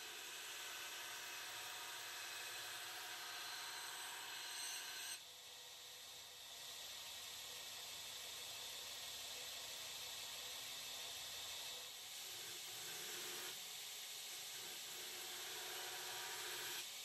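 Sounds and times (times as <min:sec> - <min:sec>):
belt grinder running with hiss: 0:00.0 - 0:17.0.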